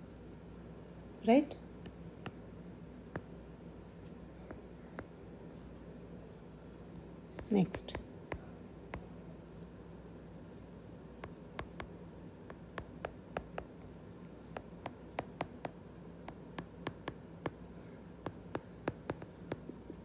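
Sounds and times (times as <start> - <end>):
stylus tapping on glass screen: 11.2 - 11.9, 18.3 - 19.6.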